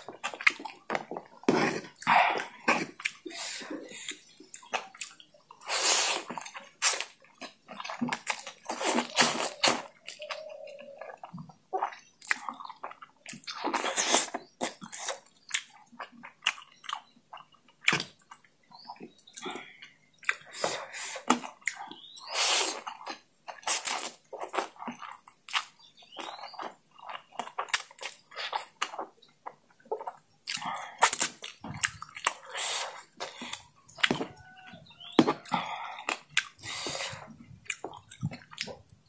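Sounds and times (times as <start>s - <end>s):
smacking chews: 0.0s - 39.0s
slurping noodles: 5.6s - 7.1s, 8.3s - 10.3s, 22.2s - 23.0s, 31.9s - 34.2s.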